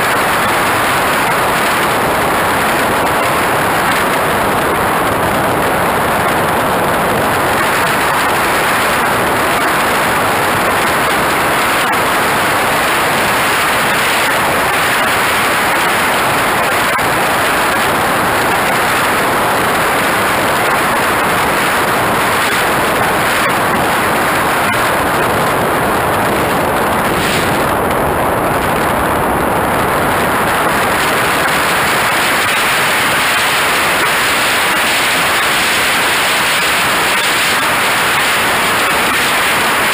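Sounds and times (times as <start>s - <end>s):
airflow and jet noise: 0.0s - 39.9s.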